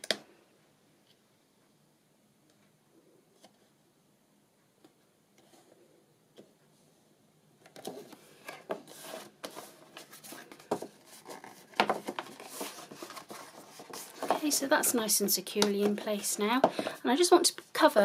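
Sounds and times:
paper and card rustling: 0:07.7 - 0:17.3.

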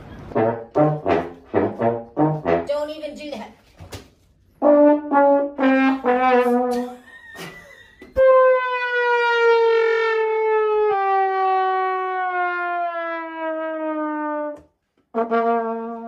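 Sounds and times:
trombone notes: 0:00.1 - 0:03.0, 0:04.6 - 0:07.0, 0:08.2 - 0:16.0.

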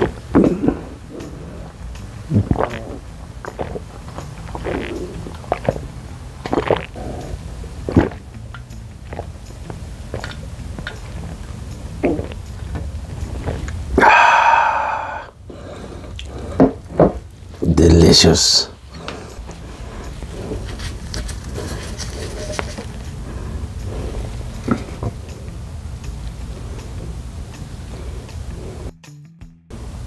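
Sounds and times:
man exhaling ahh: 0:00.0 - 0:01.7, 0:13.9 - 0:16.7
chewing and mouth smacks: 0:00.0 - 0:13.8
low steady hum: 0:00.0 - 0:28.9, 0:29.7 - 0:30.0.

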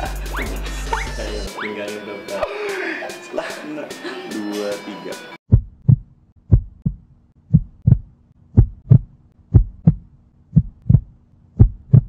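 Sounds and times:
heartbeat thumps: 0:05.5 - 0:12.0.

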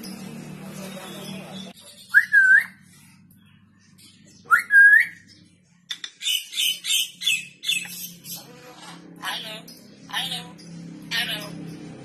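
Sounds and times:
parrot whistling: 0:02.1 - 0:02.8.

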